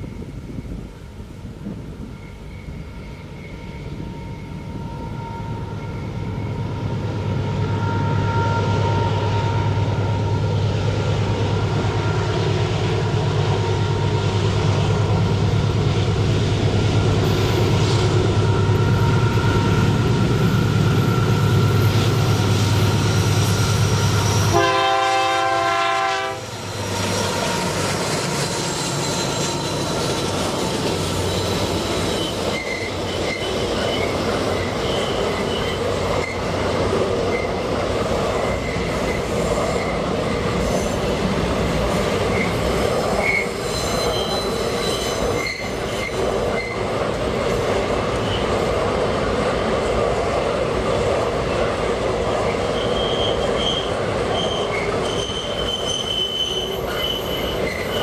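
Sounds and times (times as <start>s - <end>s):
diesel locomotive engine rumble: 0.0s - 58.0s
locomotive horn: 6.6s - 10.4s, 24.2s - 26.6s
train wagons clickety-clack: 9.1s - 58.0s.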